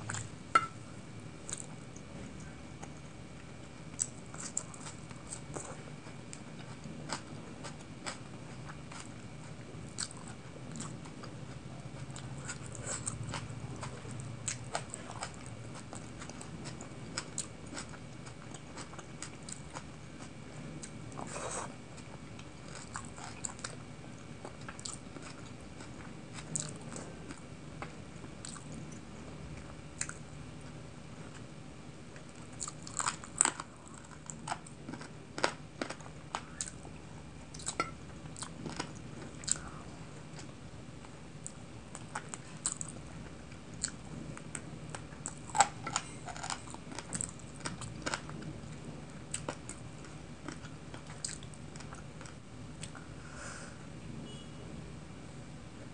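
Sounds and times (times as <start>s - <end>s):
wet chewing clicks and smacks: 24.5s - 28.7s.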